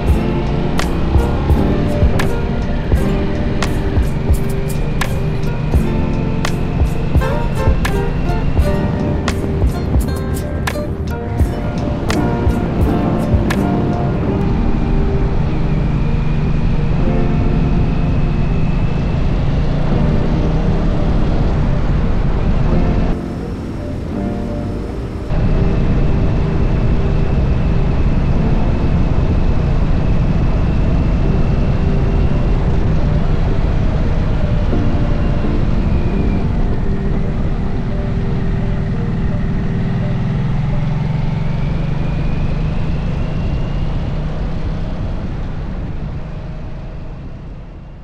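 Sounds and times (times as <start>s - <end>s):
motorcycle engine running: 0.0s - 18.4s
wind and road rush: 0.0s - 48.0s.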